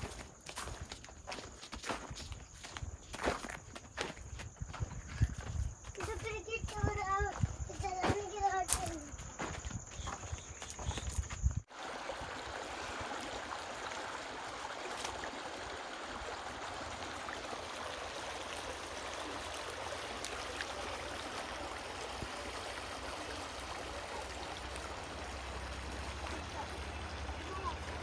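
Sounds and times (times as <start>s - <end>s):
water flowing over stones: 11.6s - 28.0s.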